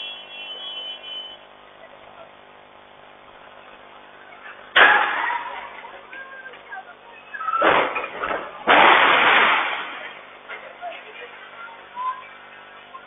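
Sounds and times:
low street noise: 0.0 - 13.0
vehicle collision crash: 4.7 - 6.8, 7.5 - 11.7.

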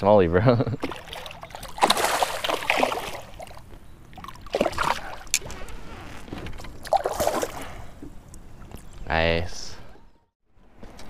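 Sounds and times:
water splashing and sloshing: 0.6 - 9.0.

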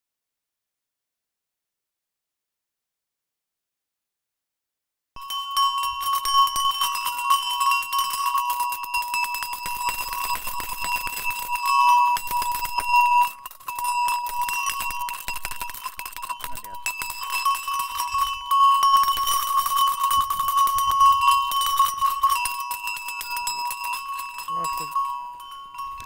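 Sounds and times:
animal bells jingling: 5.2 - 26.0.

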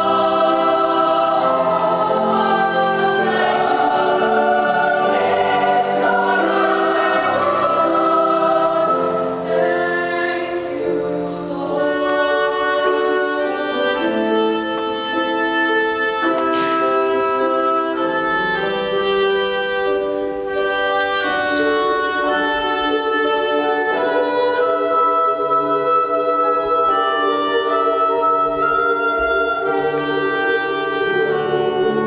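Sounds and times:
boys' choir singing: 0.0 - 14.4, 22.3 - 32.0
piano accompaniment: 0.0 - 32.0.

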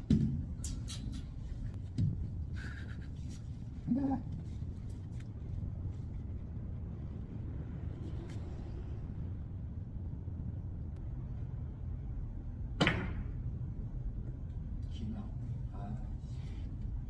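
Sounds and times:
low room rumble: 0.0 - 17.0
cue striking billiard ball: 12.8 - 13.3.

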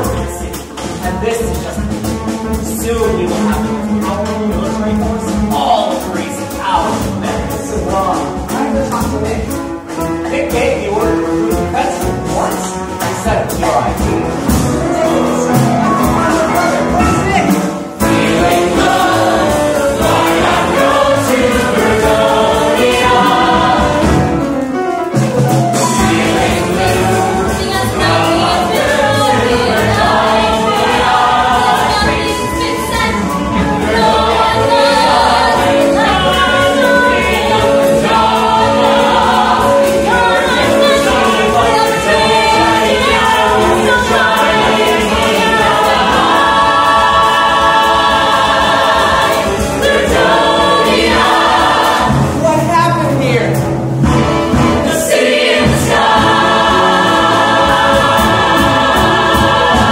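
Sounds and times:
chorus singing: 0.0 - 59.9
live band playing: 0.0 - 59.9.

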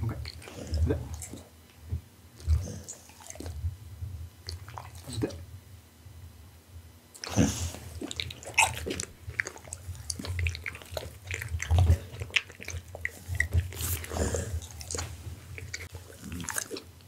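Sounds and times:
dog mouth smacks and licking: 4.4 - 5.3, 7.1 - 16.9
dog chewing clicks: 8.0 - 16.9.

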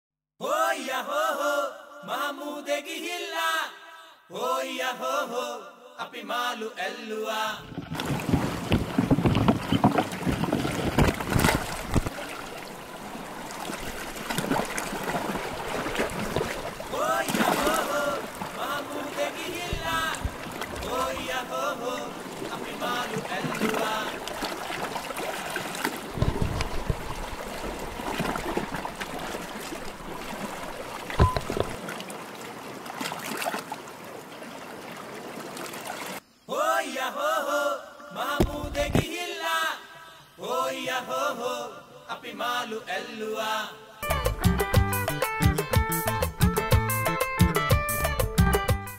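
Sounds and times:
surf splashing: 7.6 - 36.2
knocks against canoe hull: 7.7 - 12.1, 38.4 - 39.1.

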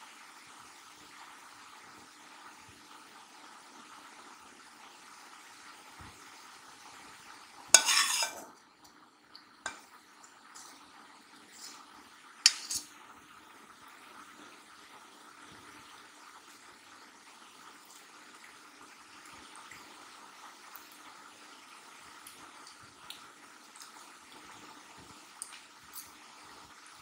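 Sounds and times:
utensil scraping cookware: 7.7 - 8.6, 11.5 - 13.0
utensil clinking cookware: 7.8 - 8.6, 9.6 - 10.0, 12.4 - 12.9.

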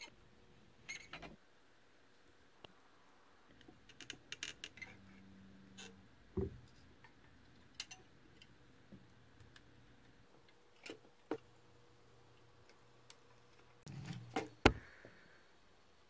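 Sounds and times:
small parts clicking and tapping: 7.0 - 11.4.

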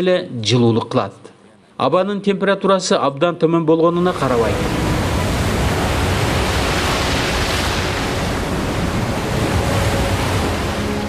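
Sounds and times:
sea waves breaking: 3.9 - 11.0.

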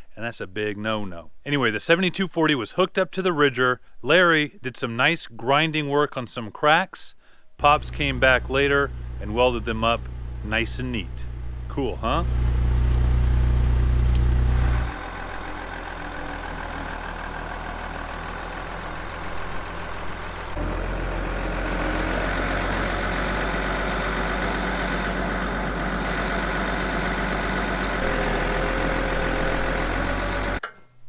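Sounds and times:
heavy engine idling: 7.6 - 30.6
loud low hum: 7.6 - 30.6.

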